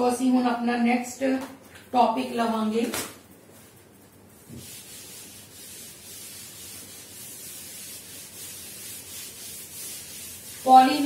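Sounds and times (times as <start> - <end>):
duster scrubbing chalkboard: 4.3 - 11.0.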